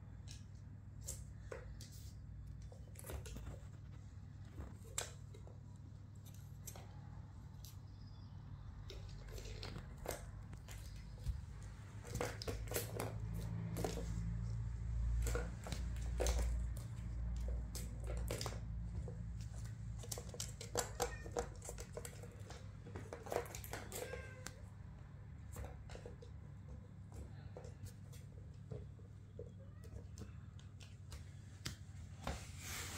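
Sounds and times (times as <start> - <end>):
kitten meows: 20.8 - 21.5, 23.9 - 24.6.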